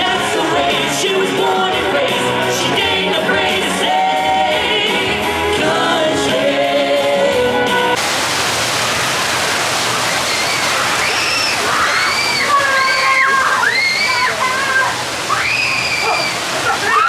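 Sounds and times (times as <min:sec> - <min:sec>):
singing over band music: 0:00.0 - 0:07.8
splashing water rushing: 0:08.0 - 0:17.0
faint voices: 0:10.0 - 0:17.0.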